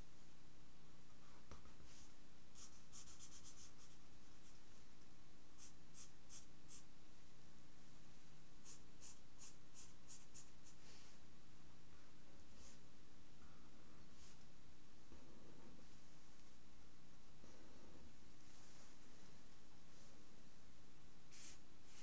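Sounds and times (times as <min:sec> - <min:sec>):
pen scratching on paper: 0:02.6 - 0:04.0.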